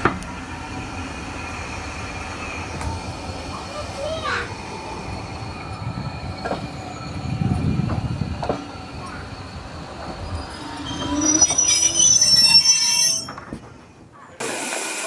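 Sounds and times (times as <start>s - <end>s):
steam locomotive rumble and knock: 0.0s - 12.0s
high-pitched wheel squeal: 10.1s - 13.5s
steam escaping: 14.4s - 15.0s.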